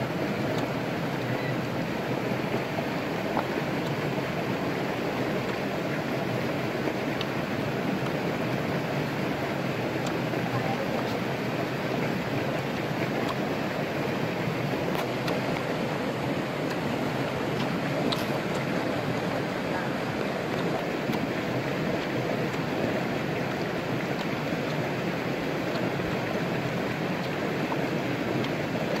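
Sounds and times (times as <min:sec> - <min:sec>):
stream rushing: 0:00.0 - 0:29.0
faint clicks: 0:17.6 - 0:19.3.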